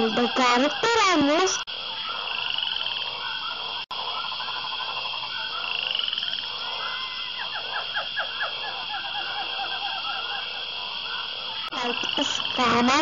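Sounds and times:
frogs croaking and trilling: 0:00.0 - 0:13.0.

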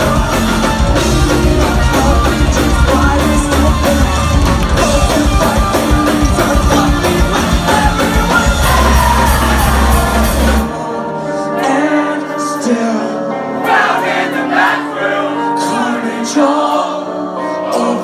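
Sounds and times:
person singing into a microphone: 0:00.0 - 0:13.6, 0:15.4 - 0:18.0
rock band playing: 0:00.0 - 0:18.0.

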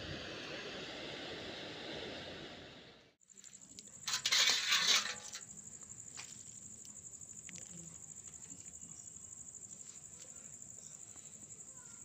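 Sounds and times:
crickets chirping: 0:03.2 - 0:12.0.

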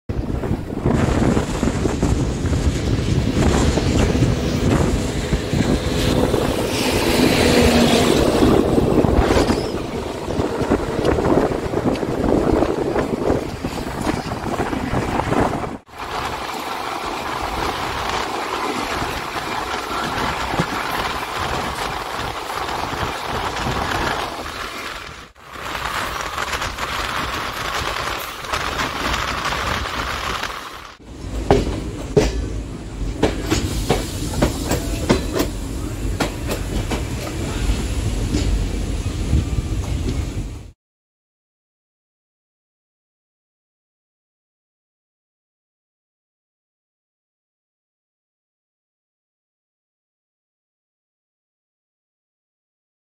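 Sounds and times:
wind buffeting microphone: 0:00.1 - 0:32.2
train coaches rumbling: 0:00.1 - 0:40.8.

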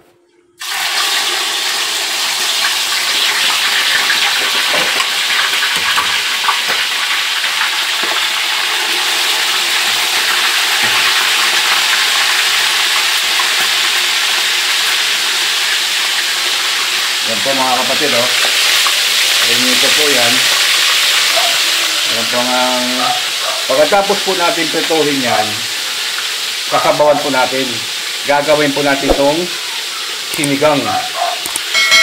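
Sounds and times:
fish sizzling in oil: 0:00.6 - 0:32.0.

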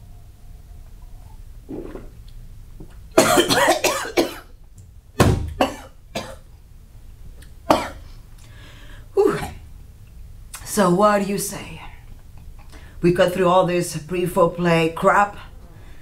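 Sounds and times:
woman coughing: 0:03.2 - 0:04.5, 0:05.6 - 0:06.4, 0:07.7 - 0:08.0.

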